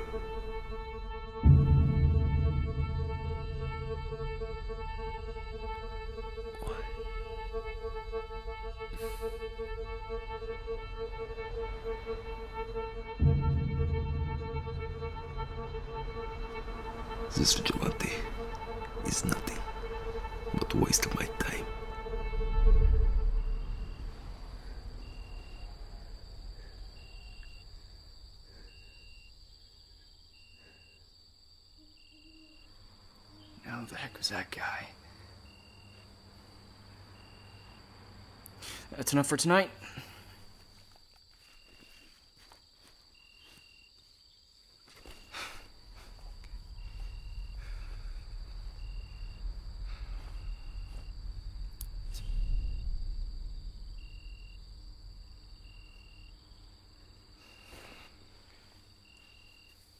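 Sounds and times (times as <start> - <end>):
low rumble: 0.0 - 28.4, 45.7 - 57.5
cricket chirping: 0.0 - 59.9
insect hum: 0.0 - 59.9
rustle: 40.0 - 59.9.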